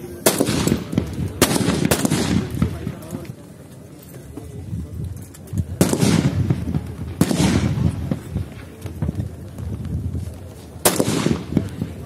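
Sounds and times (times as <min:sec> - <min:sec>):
rifle shots with echo: 0:00.0 - 0:03.4, 0:05.7 - 0:09.4, 0:10.8 - 0:12.0.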